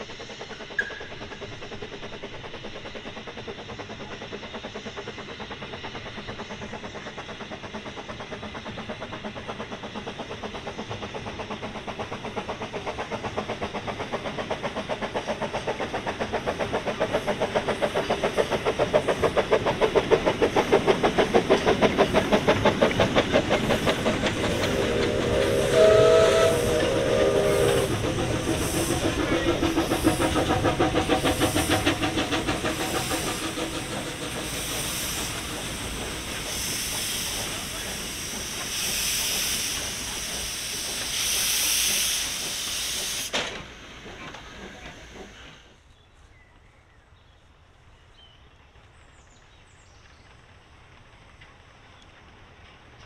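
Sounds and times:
steam hissing from cylinders: 0.0 - 45.9
steam locomotive beats passing: 0.0 - 47.7, 48.4 - 53.0
steam whistle: 24.4 - 29.2.

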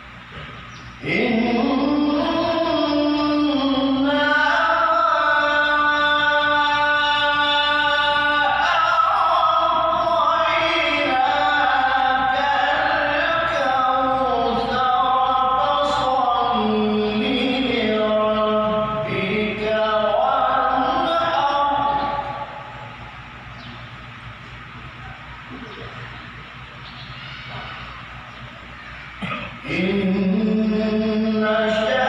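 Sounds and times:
man chanting through microphone: 1.0 - 23.1, 29.2 - 32.0.

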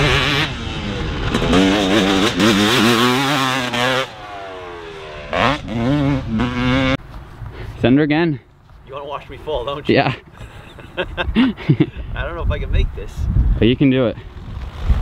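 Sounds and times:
dirt bike engine revving: 0.0 - 7.0, 14.3 - 15.0.

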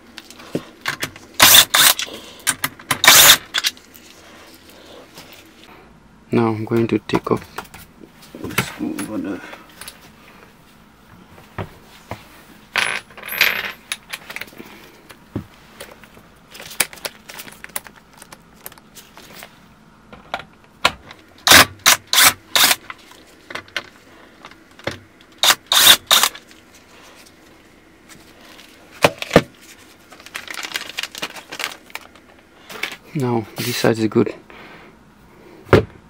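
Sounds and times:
cordless drill bursts: 1.4 - 2.0, 3.0 - 3.4, 21.5 - 22.8, 25.4 - 26.3.

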